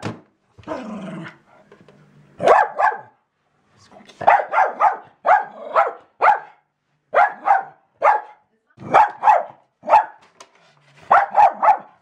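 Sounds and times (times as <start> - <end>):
dog barking rapidly: 2.4 - 3.2, 4.2 - 10.2, 11.1 - 12.0.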